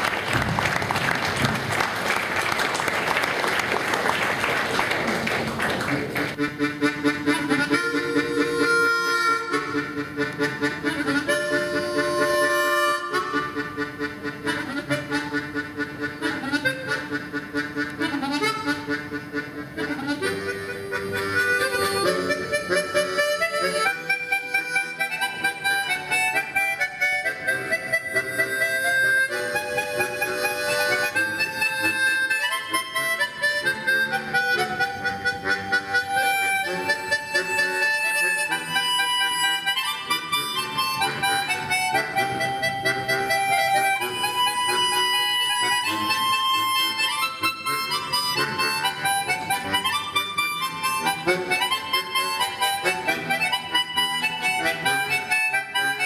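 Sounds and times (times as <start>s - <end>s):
audience applause: 0.0s - 6.4s
harmonicas playing chords: 6.3s - 56.0s.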